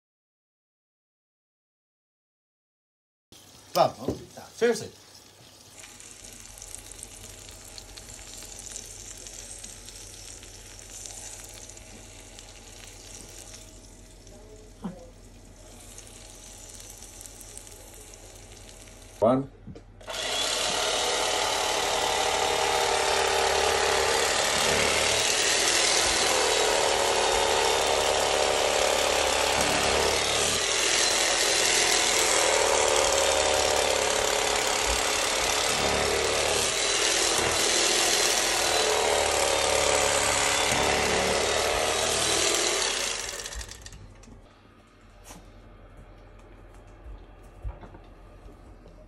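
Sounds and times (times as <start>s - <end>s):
electric carving knife buzzing: 20.0s - 44.0s.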